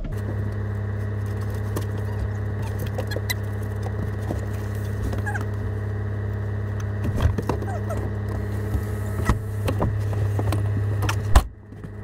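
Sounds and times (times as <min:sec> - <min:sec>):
van engine idling: 0:00.1 - 0:12.0.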